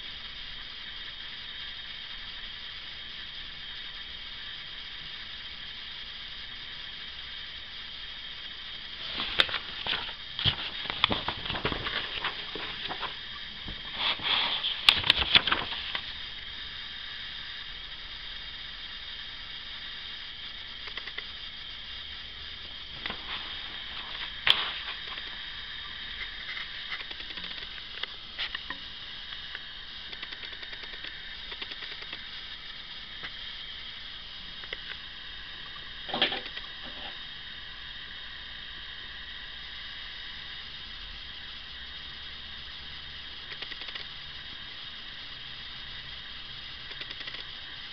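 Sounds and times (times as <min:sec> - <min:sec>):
steady hiss: 0:00.0 - 0:47.9
paper pages rustling: 0:09.1 - 0:13.2, 0:14.0 - 0:16.1
sharp click: 0:20.8 - 0:21.3, 0:29.4 - 0:32.2, 0:43.5 - 0:44.1.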